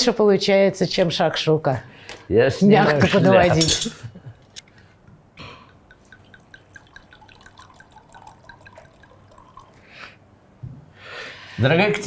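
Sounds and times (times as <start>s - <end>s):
wine glugging from bottle into glass: 5.7s - 9.9s.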